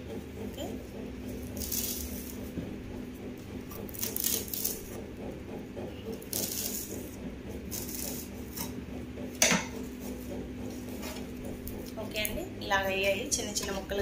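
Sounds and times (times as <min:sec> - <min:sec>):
steady low hum: 0:00.0 - 0:14.0
knife cutting leaves on table: 0:01.2 - 0:02.7, 0:03.7 - 0:05.0, 0:06.0 - 0:08.8.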